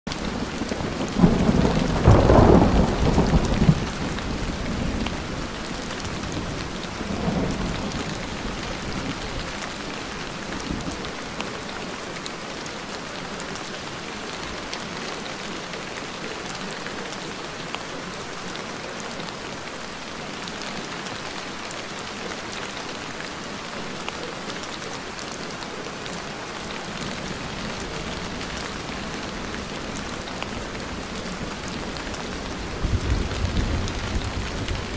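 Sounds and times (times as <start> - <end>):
steady rain: 0.1 - 34.9
thunder rumbling: 0.4 - 9.4, 30.8 - 34.9.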